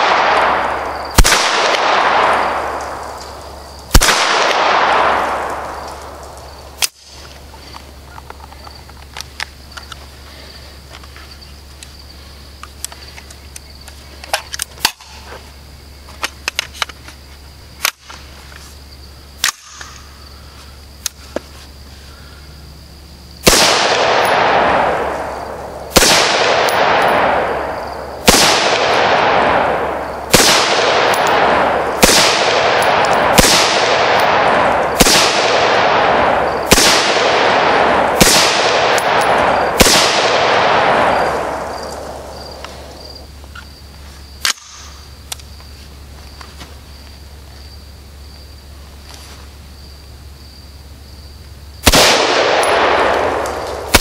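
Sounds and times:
rifle shots with echo: 0:00.0 - 0:03.2, 0:03.9 - 0:07.0, 0:23.4 - 0:43.0, 0:51.8 - 0:54.0.

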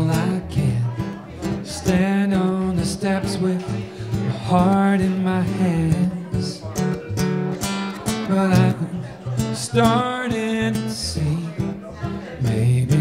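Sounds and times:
man singing: 0:00.0 - 0:07.2, 0:07.9 - 0:13.0
acoustic guitars strummed and picked: 0:00.0 - 0:13.0.

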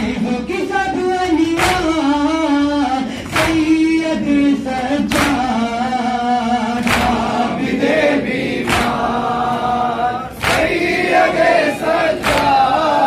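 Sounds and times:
man chanting into a microphone: 0:00.0 - 0:07.2
group of men singing along: 0:00.0 - 0:13.0
unison chest-beating slaps: 0:01.3 - 0:02.1, 0:03.2 - 0:04.0, 0:05.1 - 0:05.7, 0:06.8 - 0:07.4, 0:08.6 - 0:09.2, 0:10.4 - 0:10.9, 0:12.2 - 0:12.6.

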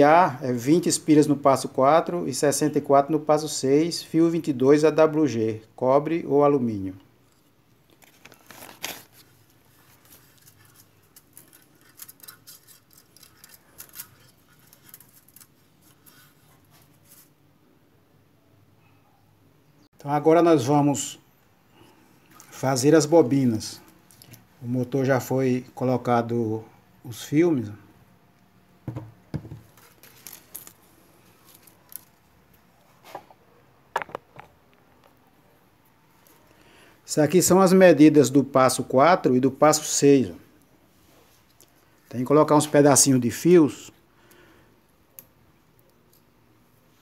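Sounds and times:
handling clicks and rustles: 0:07.2 - 0:17.3, 0:28.9 - 0:33.4
metal core knocking on wood: 0:28.8 - 0:29.6.

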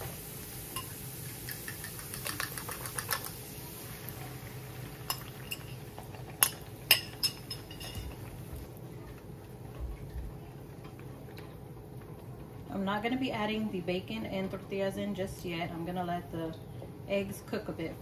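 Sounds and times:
fork clinking on glass bowl: 0:06.4 - 0:08.2.

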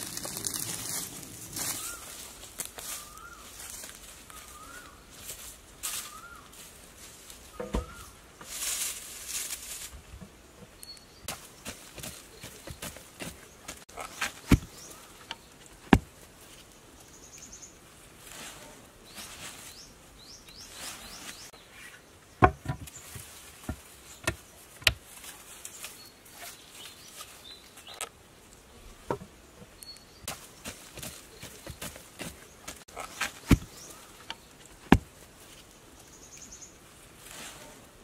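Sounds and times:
soil scraping and rustling: 0:00.0 - 0:38.0
bird chirps: 0:01.6 - 0:03.6, 0:04.3 - 0:05.0, 0:29.7 - 0:32.7
digging stick knocking into earth: 0:07.5 - 0:08.1, 0:14.0 - 0:16.1, 0:22.4 - 0:25.0, 0:30.3 - 0:35.1.

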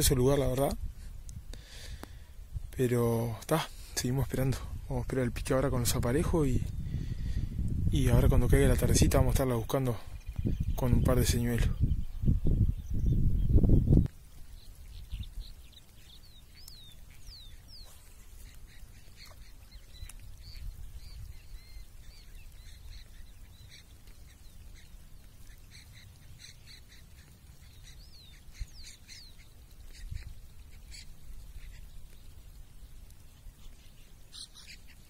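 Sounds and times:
birds chirping: 0:01.4 - 0:35.0
birds whistling: 0:10.1 - 0:32.3, 0:33.5 - 0:35.0.

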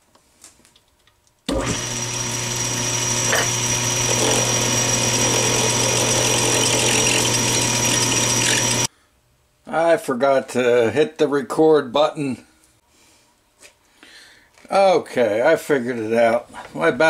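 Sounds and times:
lathe motor humming and whining: 0:01.5 - 0:08.9
tool cutting metal rod: 0:01.5 - 0:08.9.

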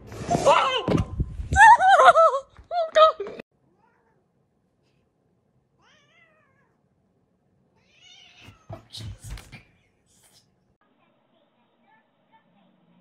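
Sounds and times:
cat meowing: 0:05.8 - 0:06.8, 0:07.8 - 0:09.1.

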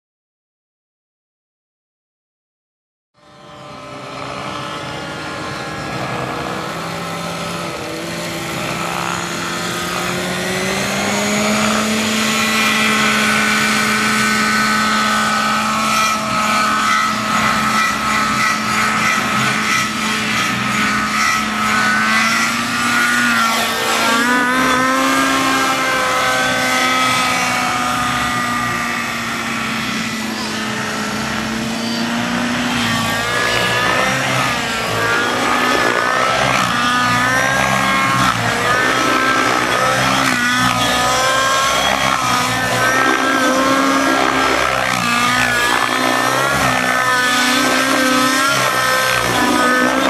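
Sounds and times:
model helicopter engine and rotor: 0:03.2 - 0:50.0.

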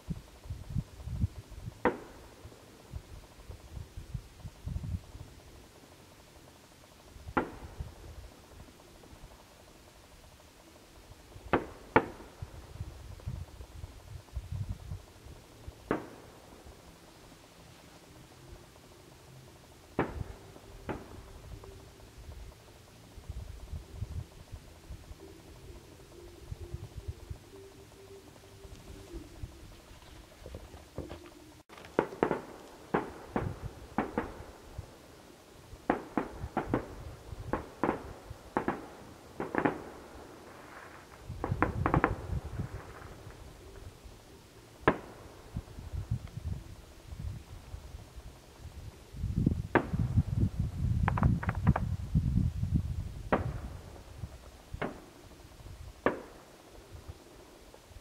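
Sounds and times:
distant fireworks bangs: 0:01.7 - 0:02.6, 0:07.3 - 0:08.8, 0:11.4 - 0:14.0, 0:15.4 - 0:16.9, 0:19.9 - 0:22.0, 0:30.5 - 0:35.1, 0:35.8 - 0:43.8, 0:44.8 - 0:45.8, 0:49.7 - 0:50.4, 0:53.2 - 0:55.2, 0:55.9 - 0:57.8
distant firework booms: 0:53.2 - 0:55.1.

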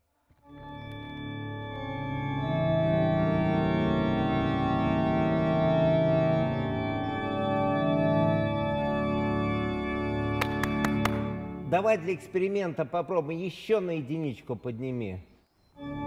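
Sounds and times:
pipe organ chords: 0:00.4 - 0:16.0.

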